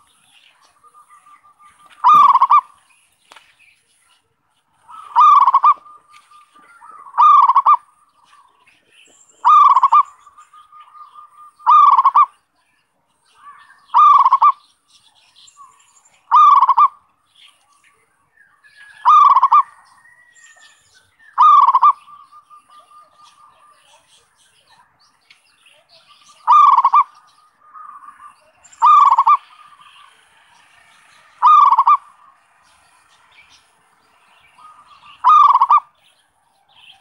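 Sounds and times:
dove cooing: 0.0s - 2.8s, 4.8s - 8.5s, 9.4s - 12.4s, 13.9s - 14.6s, 16.3s - 17.0s, 19.0s - 20.2s, 21.4s - 23.8s, 26.3s - 32.6s, 34.4s - 36.0s.

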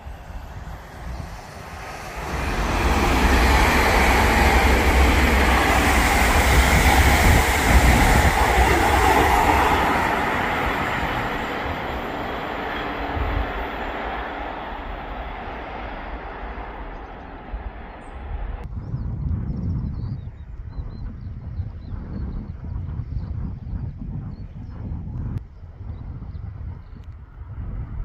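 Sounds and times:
train passing at speed: 0.0s - 18.7s.

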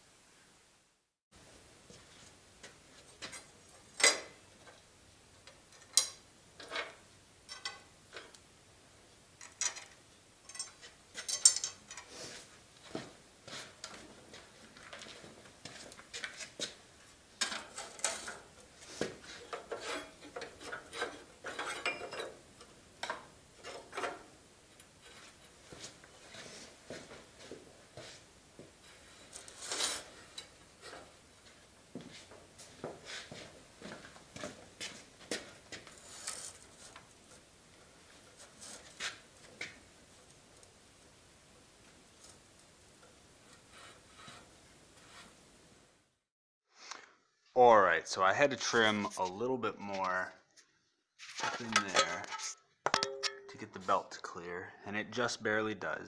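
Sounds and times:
metallic clanks and rattles of tools: 5.7s - 8.4s, 9.4s - 12.1s, 19.4s - 24.3s, 51.4s - 53.8s.

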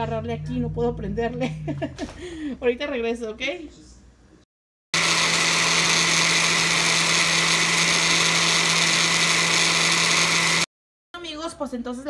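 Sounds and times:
blender motor running: 5.0s - 10.7s.

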